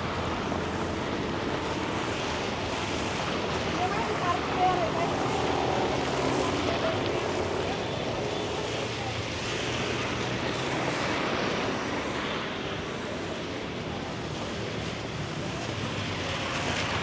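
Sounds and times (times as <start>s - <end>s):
steady rain: 0.0s - 17.0s
street traffic: 0.0s - 17.0s
faint voices: 3.6s - 17.0s.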